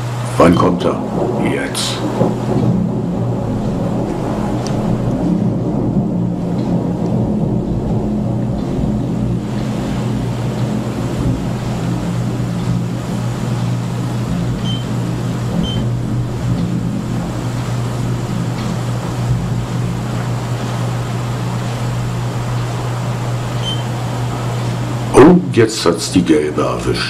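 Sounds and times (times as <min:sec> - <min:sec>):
hiss and faint crackles: 0:00.0 - 0:27.0
thunder rumbling: 0:00.0 - 0:27.0
short high beeps: 0:14.6 - 0:14.9, 0:23.6 - 0:23.9.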